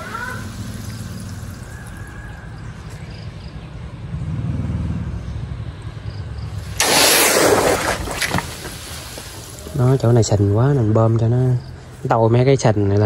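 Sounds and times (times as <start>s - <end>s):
hose water churning into pond: 0.0s - 2.5s, 6.6s - 10.4s.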